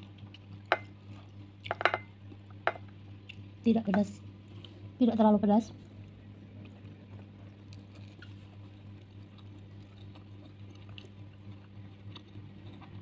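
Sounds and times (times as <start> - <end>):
steady low hum: 0.0 - 13.0
quiet chewing: 3.2 - 3.5, 4.5 - 4.9, 5.8 - 13.0.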